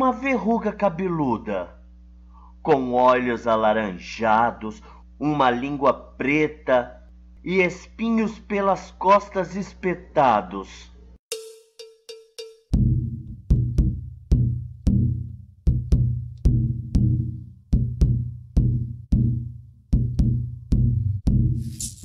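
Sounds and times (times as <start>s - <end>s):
bass drum beaten in dance rhythm: 12.7s - 22.0s.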